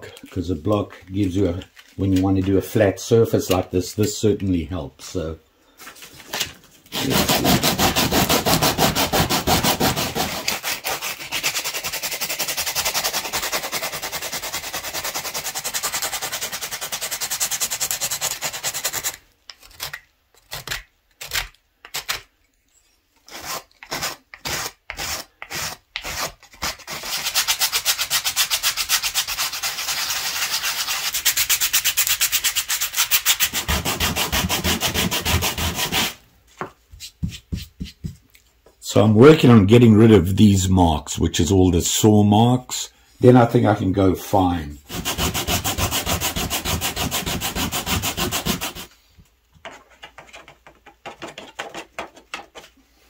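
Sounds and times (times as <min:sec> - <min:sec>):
sandpaper rubbing on wood: 0:06.9 - 0:19.2, 0:23.3 - 0:36.2, 0:44.9 - 0:48.9.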